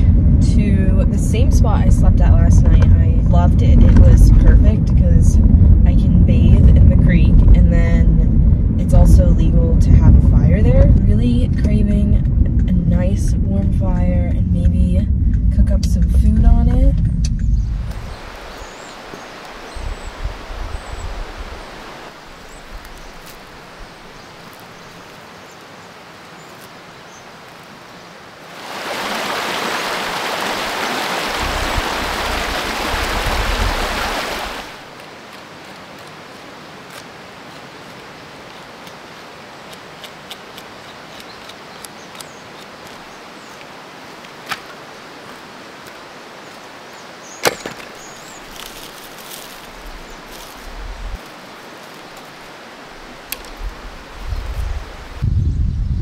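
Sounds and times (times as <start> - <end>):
loud rushing noise with rumble: 0.0 - 18.5
sticks knocking and cracking: 34.9 - 43.1, 44.2 - 46.0, 47.4 - 52.3.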